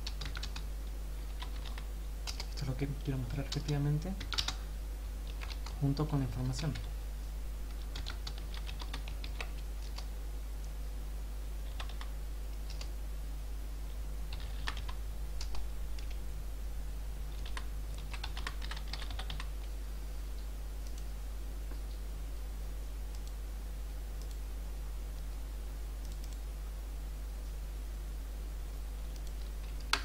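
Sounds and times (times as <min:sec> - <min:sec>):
typing on computer keyboard: 0:00.0 - 0:00.6, 0:01.4 - 0:02.6, 0:03.4 - 0:04.6, 0:05.3 - 0:05.8, 0:07.9 - 0:10.1, 0:11.7 - 0:12.9, 0:14.3 - 0:16.1, 0:17.4 - 0:19.5
steady low hum: 0:00.0 - 0:30.0.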